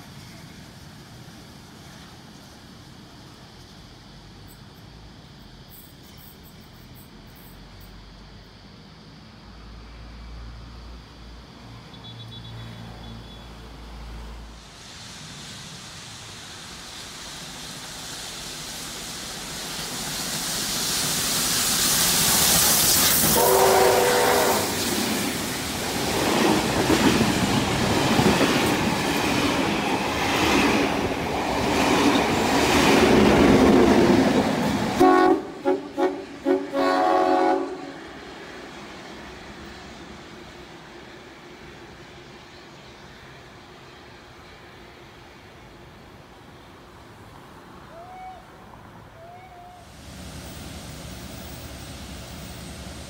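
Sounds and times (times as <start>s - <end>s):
train rushing past: 9.6s - 53.0s
train whistle blast: 23.1s - 24.9s, 35.0s - 38.0s, 47.9s - 48.5s, 49.2s - 49.9s
train horn toots: 23.3s - 24.8s, 35.0s - 38.0s.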